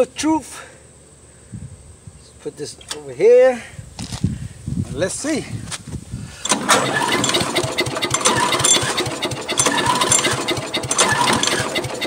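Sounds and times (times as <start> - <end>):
engine cranking without starting: 6.4 - 12.0.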